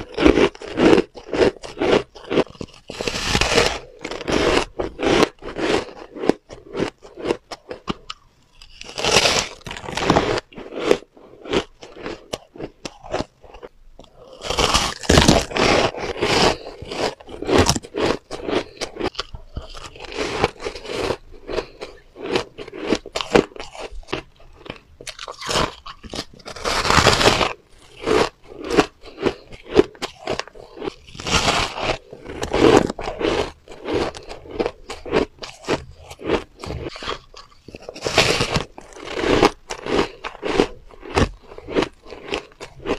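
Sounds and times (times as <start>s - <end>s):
chewing crunchy ice: 0.0s - 42.9s.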